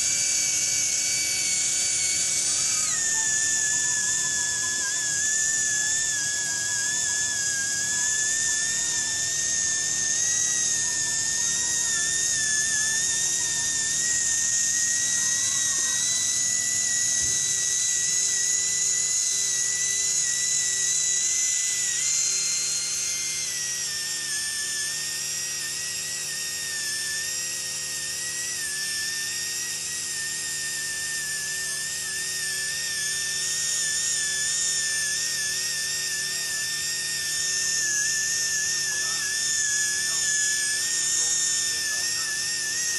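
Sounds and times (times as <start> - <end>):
polishing handpiece whining: 0.0 - 42.9.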